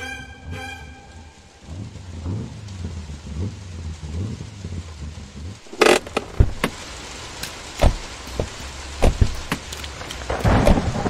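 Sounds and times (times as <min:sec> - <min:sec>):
steady rain: 0:00.0 - 0:11.0
rough rumble: 0:00.5 - 0:11.0
car doors and luggage thumps: 0:05.7 - 0:06.8, 0:07.8 - 0:09.6.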